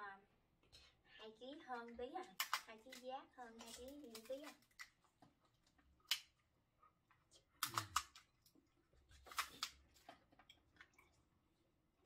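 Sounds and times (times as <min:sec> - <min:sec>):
scissors cutting crab shell: 0:02.3 - 0:04.9, 0:07.6 - 0:08.2
crunchy snips and cracks: 0:02.3 - 0:05.0, 0:07.6 - 0:10.2.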